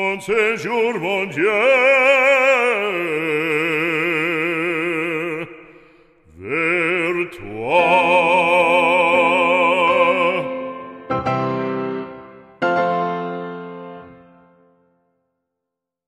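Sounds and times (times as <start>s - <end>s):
operatic voice singing: 0.0s - 11.1s.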